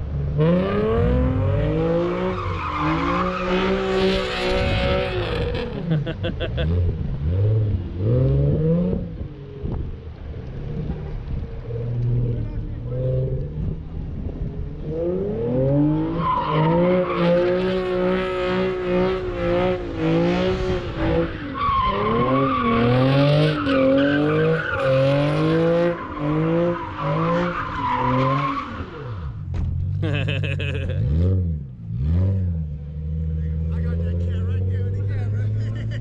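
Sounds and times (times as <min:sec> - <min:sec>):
tires squealing on asphalt: 0:00.4 - 0:09.0, 0:14.8 - 0:31.4
car engine revving hard: 0:00.4 - 0:09.2, 0:14.8 - 0:29.2, 0:30.0 - 0:36.0.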